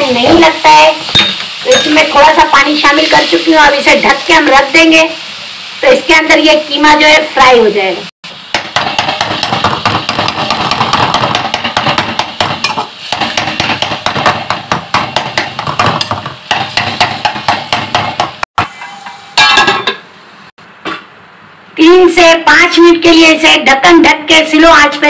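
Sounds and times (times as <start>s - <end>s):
food sizzling: 0.0s - 20.5s
spatula scraping metal pan: 18.6s - 19.8s.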